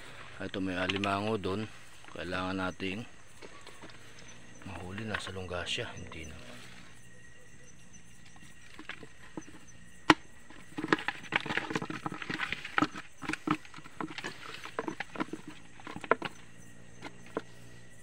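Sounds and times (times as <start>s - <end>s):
irregular crackles and clicks: 0.0s - 1.3s.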